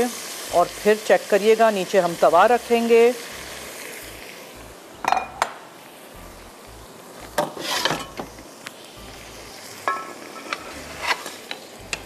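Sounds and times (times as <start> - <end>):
pan sizzling: 0.0 - 12.0
metal cookware clattering: 5.0 - 5.6, 7.4 - 8.3, 9.9 - 11.6.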